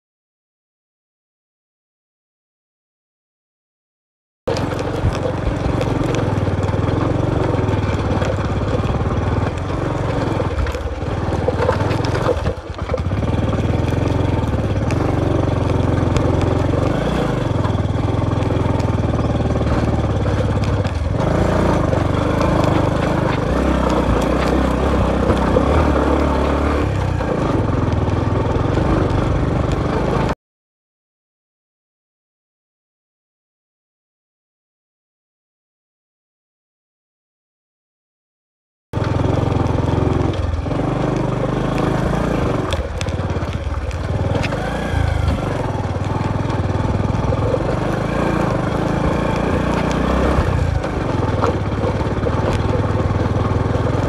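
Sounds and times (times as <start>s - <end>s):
motorcycle engine running: 4.5s - 30.4s, 39.0s - 54.0s
rocks clicking and rattling: 4.5s - 30.4s, 39.0s - 54.0s.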